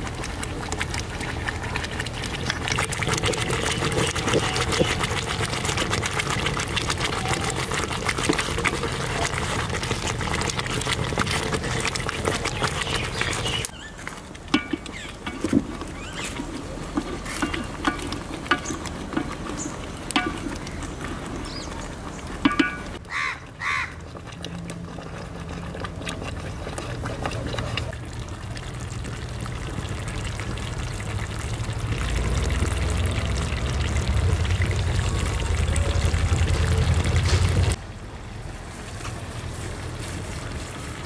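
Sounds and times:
wooden spatula stirring gravy: 0:00.0 - 0:23.0, 0:23.7 - 0:35.0
knocks and scrapes against pot: 0:02.6 - 0:13.7, 0:14.5 - 0:21.1, 0:22.3 - 0:23.0
steady low rumble: 0:28.0 - 0:40.8.

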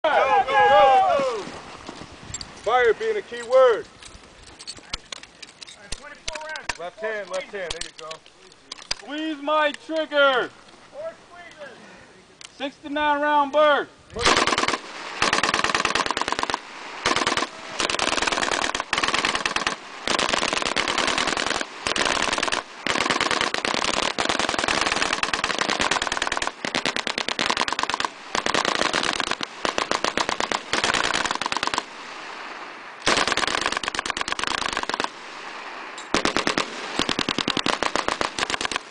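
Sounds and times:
machine-gun fire in short bursts: 0:14.2 - 0:31.9, 0:33.0 - 0:35.1, 0:36.1 - 0:38.9.

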